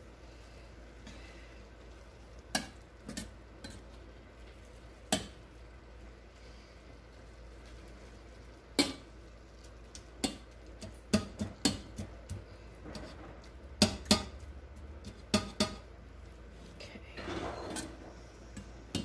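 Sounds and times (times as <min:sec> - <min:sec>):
utensil scraping frying pan: 0:10.2 - 0:14.4, 0:17.2 - 0:19.0.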